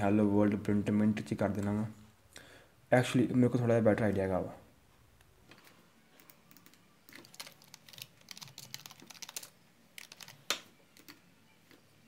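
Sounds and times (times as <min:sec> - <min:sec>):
computer keyboard typing: 0:06.2 - 0:11.2.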